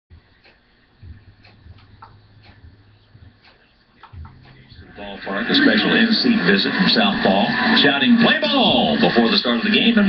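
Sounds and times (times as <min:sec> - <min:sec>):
low hum: 0:00.1 - 0:09.2
light ticking: 0:00.4 - 0:04.8.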